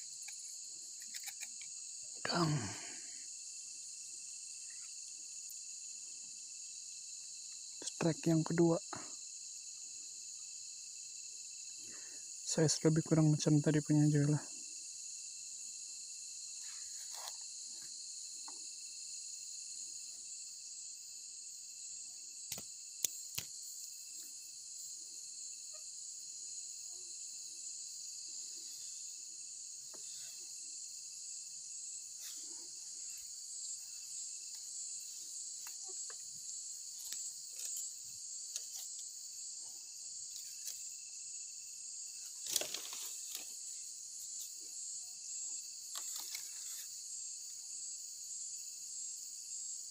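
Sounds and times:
night insects trilling: 0:00.0 - 0:49.9.

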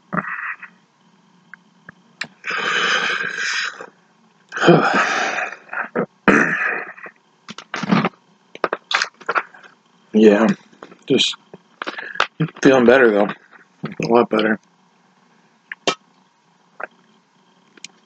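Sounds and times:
man making breathy throat sounds: 0:04.5 - 0:07.1, 0:11.8 - 0:12.6.

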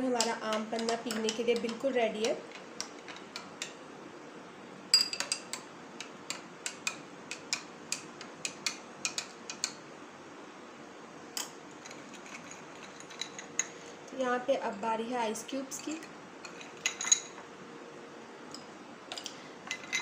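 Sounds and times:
spoon clinking against glass: 0:04.9 - 0:05.6, 0:16.4 - 0:17.4, 0:18.5 - 0:20.0.

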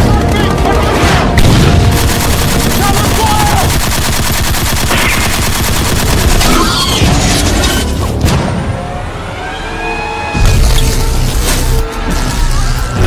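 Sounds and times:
machine-gun fire: 0:00.0 - 0:06.8.

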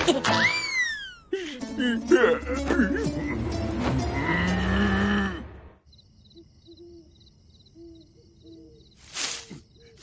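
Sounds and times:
crickets chirping: 0:04.0 - 0:10.0.

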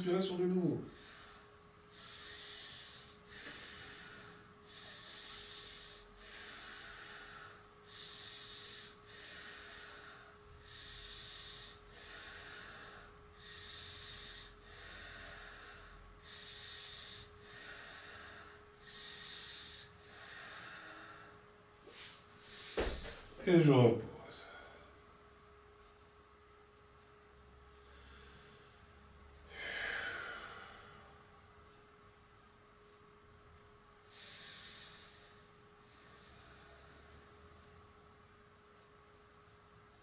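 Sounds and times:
man breathing slowly: 0:00.8 - 0:23.4, 0:24.3 - 0:25.0, 0:27.6 - 0:31.6, 0:34.0 - 0:37.8.

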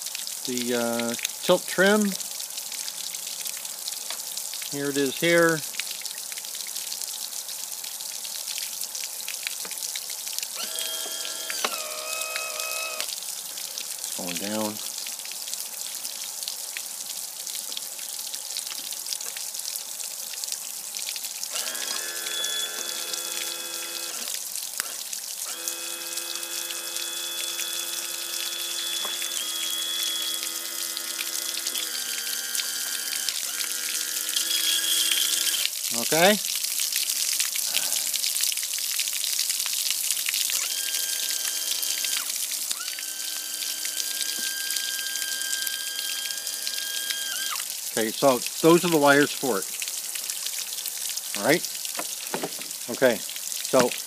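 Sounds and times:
electric motor whine: 0:10.6 - 0:13.1, 0:21.5 - 0:35.6, 0:40.6 - 0:47.6
water spraying around propeller: 0:21.5 - 0:36.2, 0:40.6 - 0:47.6.

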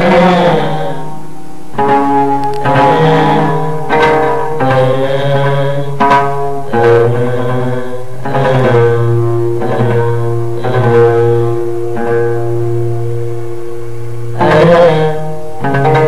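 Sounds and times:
man singing into microphone: 0:00.0 - 0:01.2, 0:02.6 - 0:12.1, 0:14.4 - 0:16.0
instrumental accompaniment: 0:00.0 - 0:16.0
steady low tone: 0:00.0 - 0:16.0.

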